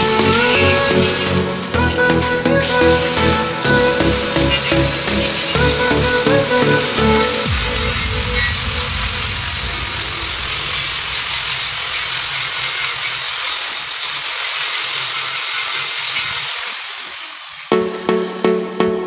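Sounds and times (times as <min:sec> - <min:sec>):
arc welding crackling hiss: 0:00.0 - 0:17.7.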